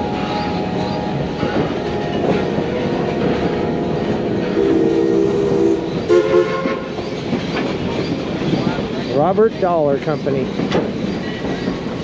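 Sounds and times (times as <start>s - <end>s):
train rattling rumble: 0.0s - 12.0s
locomotive whistle: 4.5s - 7.0s.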